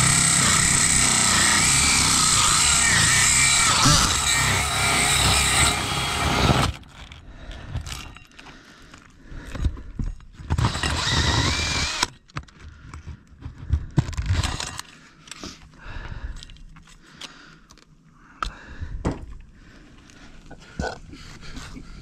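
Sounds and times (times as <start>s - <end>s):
power drill spinning hole saw: 0.0s - 7.2s, 10.5s - 12.1s, 14.2s - 14.8s.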